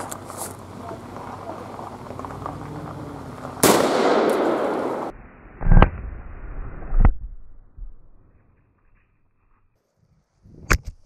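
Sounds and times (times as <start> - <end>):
dull heavy bangs: 1.4 - 5.1
revolver shot: 3.6 - 6.2.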